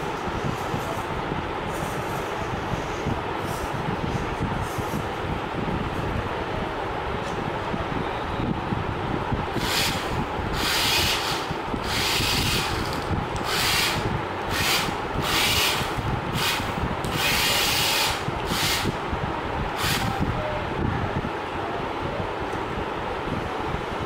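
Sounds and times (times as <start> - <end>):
small electric motors whirring: 9.6 - 19.0, 19.8 - 20.1
steady low rumble: 11.5 - 17.5.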